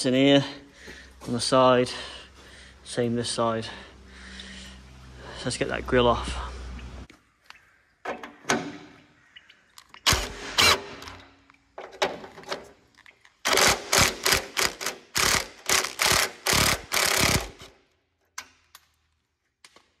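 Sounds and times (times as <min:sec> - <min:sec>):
impact wrench bursts: 0:10.1 - 0:11.2, 0:13.4 - 0:17.8.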